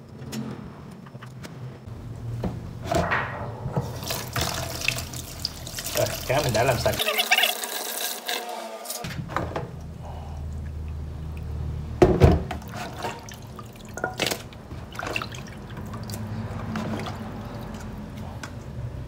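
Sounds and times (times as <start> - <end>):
water running into basin: 3.8 - 9.0, 10.3 - 18.3
hands splashing water in basin: 3.9 - 8.4, 12.6 - 18.2
thump: 12.0 - 12.6.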